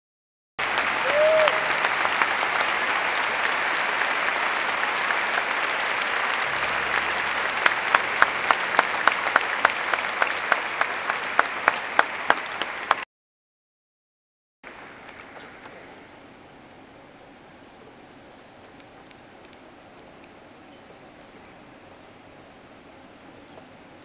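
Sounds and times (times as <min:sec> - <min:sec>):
crowd applauding: 0:00.6 - 0:13.1
sharp claps close by: 0:00.7 - 0:13.0.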